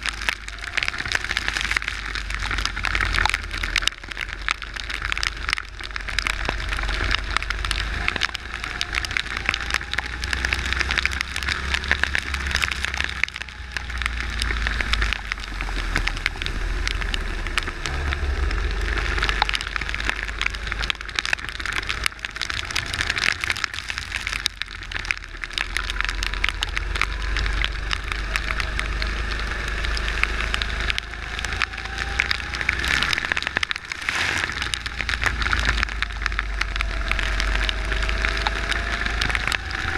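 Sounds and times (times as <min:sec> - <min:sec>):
rain spattering on camera: 0:00.0 - 0:39.9
wind rumble: 0:00.0 - 0:39.9.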